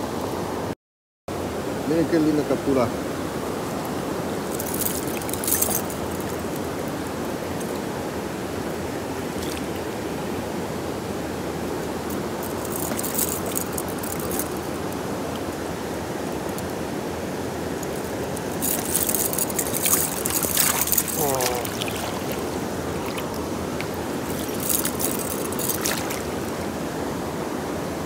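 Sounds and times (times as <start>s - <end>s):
river water flowing: 1.3s - 28.0s
metal chain clinking: 4.5s - 7.0s, 12.1s - 15.0s, 17.8s - 26.6s.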